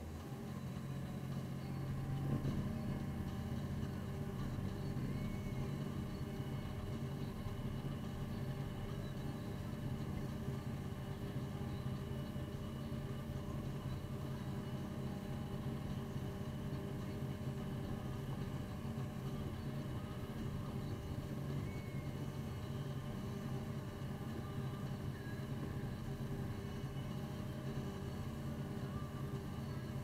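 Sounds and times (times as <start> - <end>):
truck engine droning: 0.0 - 30.0.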